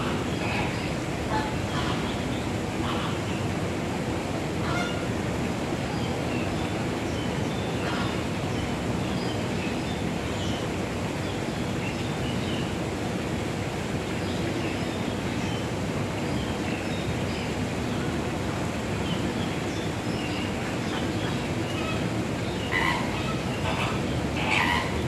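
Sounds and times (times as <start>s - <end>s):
outdoor background noise: 0.0s - 25.0s
flamingo calls: 22.6s - 25.0s.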